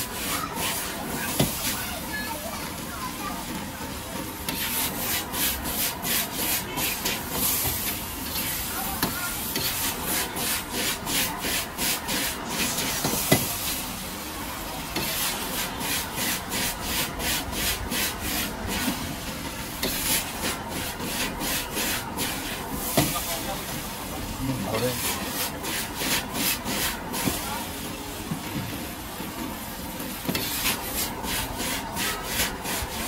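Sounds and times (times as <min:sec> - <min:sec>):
ladle scraping a wok: 0:00.0 - 0:01.8, 0:04.3 - 0:13.8, 0:15.0 - 0:23.3, 0:24.8 - 0:27.5, 0:30.2 - 0:33.0
frying hiss: 0:00.0 - 0:33.0.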